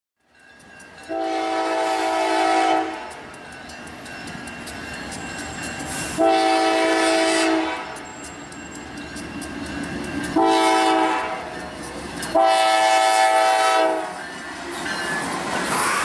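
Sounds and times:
train rumbling: 0.2 - 16.0
wheels clicking over rail joints: 0.2 - 16.0
locomotive air horn: 1.1 - 3.2, 6.2 - 8.0, 10.4 - 11.5, 12.3 - 14.2.

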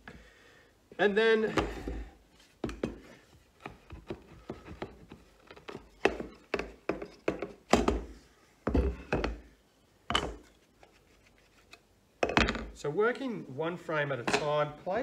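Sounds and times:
wooden parts knocking: 2.6 - 9.5.

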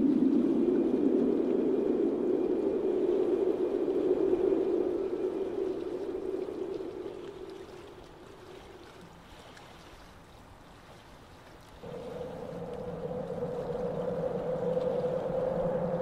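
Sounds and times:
low drone: 0.0 - 8.2, 11.8 - 16.0
higher drone: 11.8 - 16.0.

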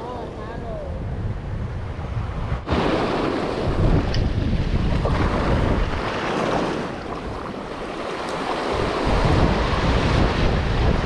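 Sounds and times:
wind buffeting the microphone: 0.0 - 11.0
waves splashing over rocks: 2.7 - 11.0.

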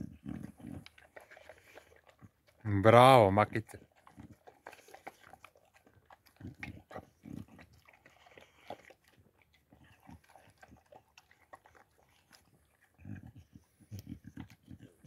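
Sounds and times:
dog chewing from steel bowl: 0.0 - 15.0.

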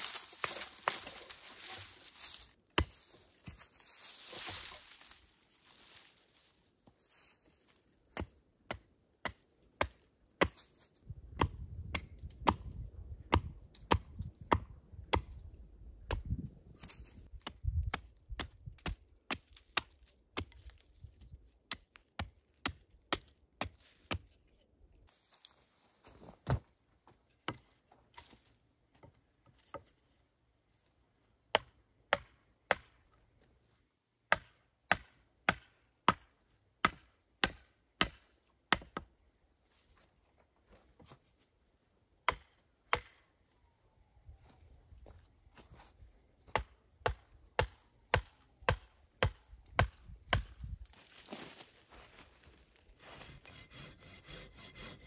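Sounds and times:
axe chopping wood: 8.1 - 10.7, 11.4 - 15.4, 17.4 - 20.8, 21.7 - 24.3, 31.5 - 33.0, 34.3 - 39.1, 42.2 - 43.2, 46.5 - 50.7.

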